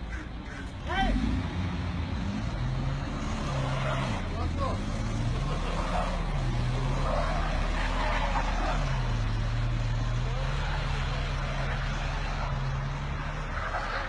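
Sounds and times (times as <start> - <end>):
car engine at high revs: 0.9 - 14.0
wheels spinning in snow: 3.0 - 14.0.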